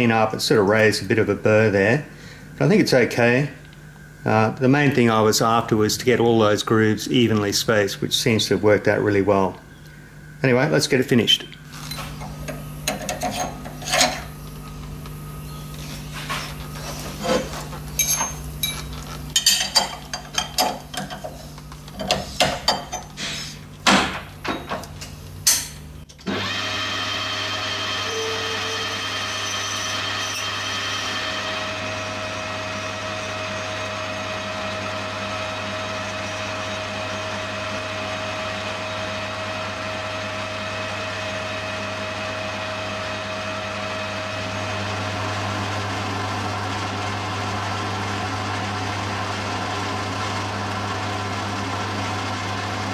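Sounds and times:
metal lathe humming and whining: 11.0 - 23.2, 26.2 - 52.9
cutting tool chamfering metal: 11.8 - 14.4.

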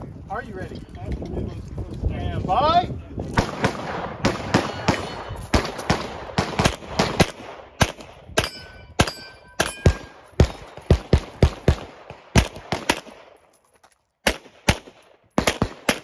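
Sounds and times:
pistol shots: 3.4 - 13.4, 14.2 - 16.0
steel plates ringing: 8.4 - 10.2.

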